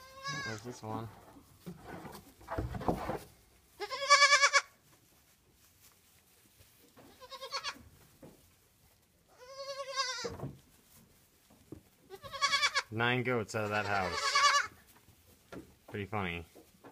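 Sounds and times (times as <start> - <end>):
goat kids bleating: 0.0 - 0.7, 3.7 - 4.8, 7.0 - 7.9, 9.3 - 10.4, 12.0 - 12.9, 13.6 - 14.8.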